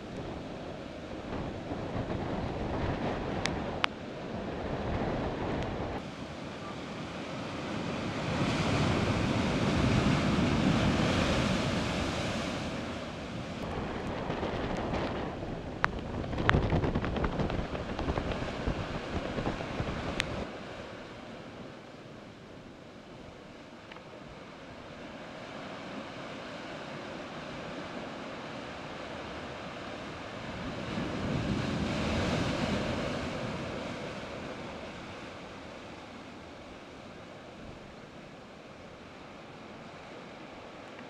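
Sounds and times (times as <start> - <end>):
wind buffeting microphone: 0.0 - 6.1, 7.0 - 20.5
surf breaking over rocks: 1.1 - 20.8.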